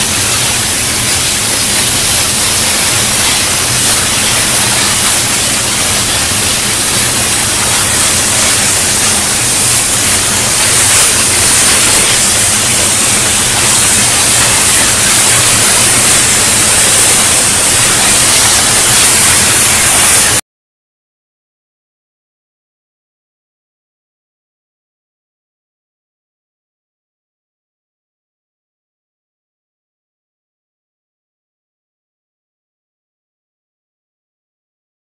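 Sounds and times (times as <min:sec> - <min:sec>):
industrial hiss: 0:00.0 - 0:20.4.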